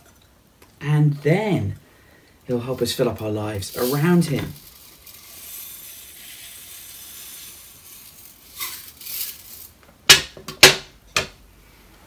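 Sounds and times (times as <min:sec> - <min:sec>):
dry rice pouring: 0:02.6 - 0:09.7.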